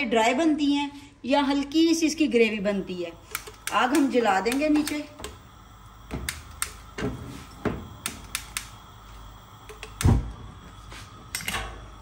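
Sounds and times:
stove igniter clicks: 3.2s - 9.0s, 9.6s - 12.0s
burner lighting thump: 3.2s - 12.0s.

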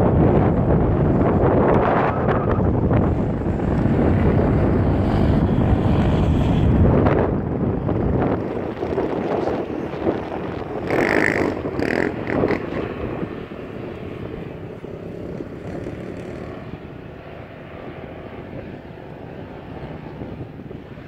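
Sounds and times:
off-road vehicle engine revving: 10.8s - 12.8s.

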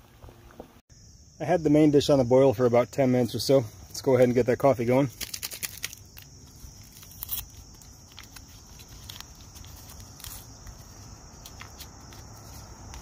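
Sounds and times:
high insect drone: 0.6s - 13.0s
paper sachet crinkling and tearing: 5.1s - 13.0s.

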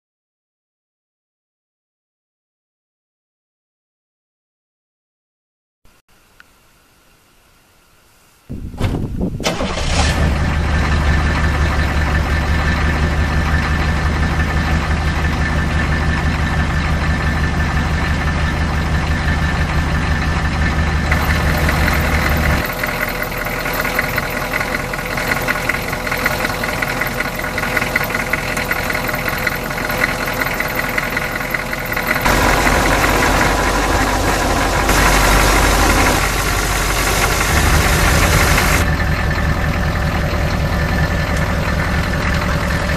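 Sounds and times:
diesel engine idling: 9.5s - 42.9s.

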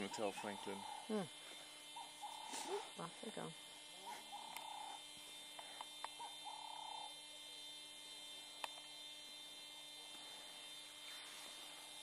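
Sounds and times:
small clicks: 8.6s - 9.0s.

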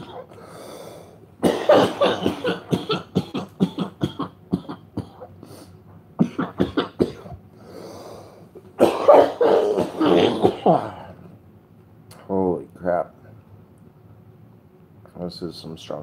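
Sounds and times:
man coughing: 0.0s - 0.3s, 1.4s - 5.3s, 6.2s - 7.4s, 8.8s - 11.2s.

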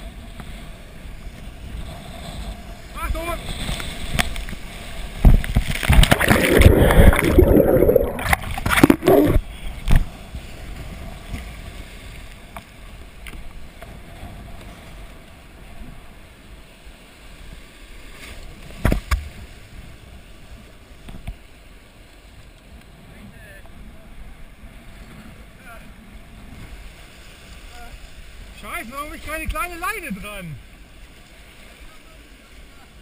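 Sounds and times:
surf crashing over kayak bow: 1.7s - 11.7s
foamy water hissing and gurgling: 5.2s - 9.5s.

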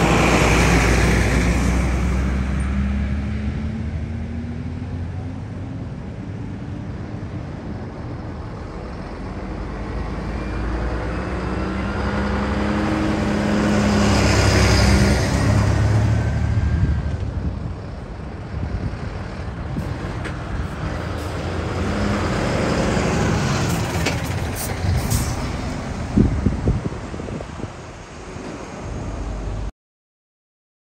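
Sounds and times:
diesel trucks driving past: 0.0s - 29.7s
air brake hisses: 25.0s - 25.4s.

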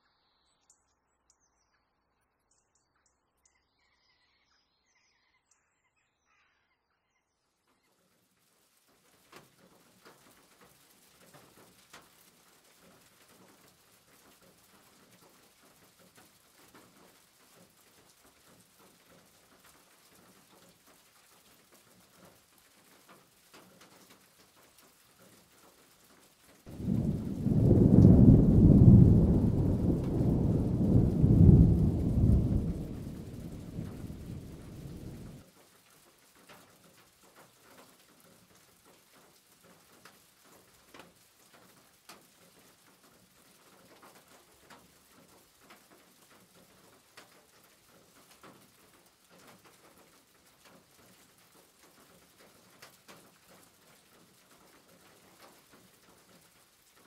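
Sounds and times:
loud low rumbling: 26.7s - 35.4s
faint ticks: 36.4s - 57.0s.

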